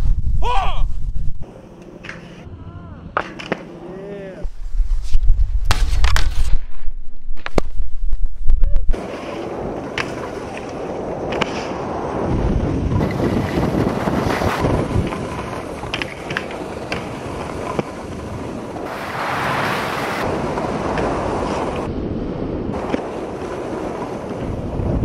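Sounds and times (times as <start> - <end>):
wind buffeting microphone: 0.0 - 1.5, 7.8 - 25.0
skis sliding on packed snow: 9.0 - 21.9, 22.8 - 25.0.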